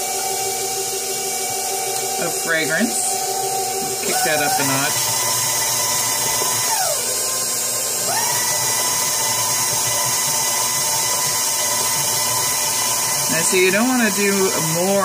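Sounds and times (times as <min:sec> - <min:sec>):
stand mixer motor whining: 0:00.0 - 0:15.0.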